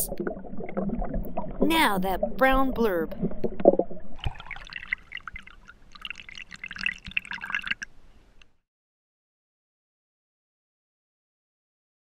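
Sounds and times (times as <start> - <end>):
water splashing and trickling: 0.0 - 8.5
crackling drips: 3.1 - 8.6.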